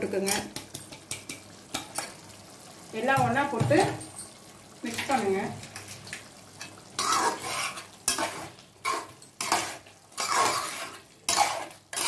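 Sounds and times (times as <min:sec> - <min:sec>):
metal spoon scraping pan: 0:07.0 - 0:12.0.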